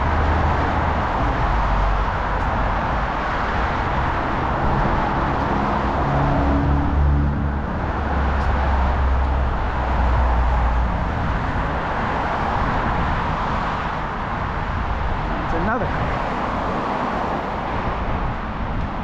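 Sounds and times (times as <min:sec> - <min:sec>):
cars passing: 0:00.0 - 0:19.0
vehicle engine rumbling: 0:00.0 - 0:19.0.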